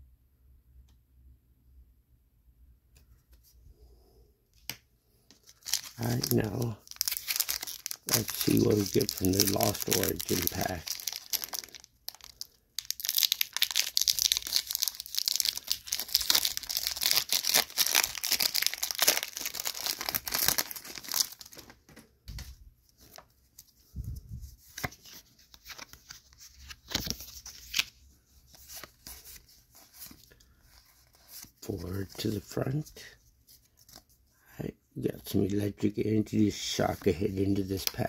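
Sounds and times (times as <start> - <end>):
cards rustling and clicking: 4.6 - 23.9, 24.6 - 32.5
foil wrapper crinkling and tearing: 5.4 - 21.8.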